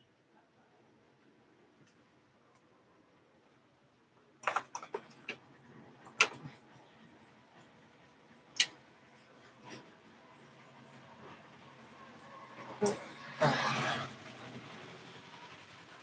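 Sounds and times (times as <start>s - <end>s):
objects clicking on a workbench: 4.4s - 5.4s.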